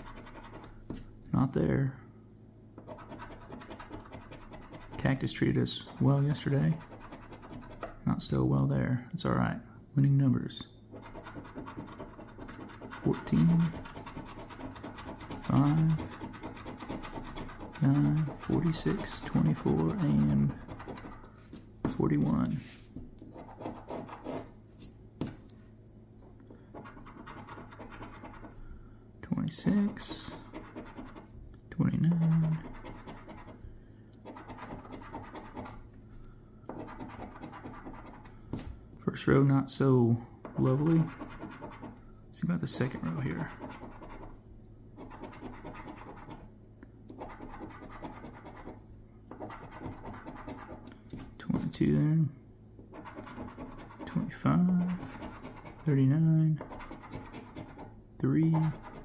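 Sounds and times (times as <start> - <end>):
coin scratching lottery ticket: 2.8 - 5.0, 11.0 - 21.2, 30.4 - 31.3, 32.1 - 33.6, 34.3 - 35.8, 36.8 - 38.3, 45.0 - 46.4, 47.2 - 48.8, 49.4 - 50.8, 52.9 - 54.2, 54.8 - 56.0, 56.6 - 57.9, 58.6 - 59.0.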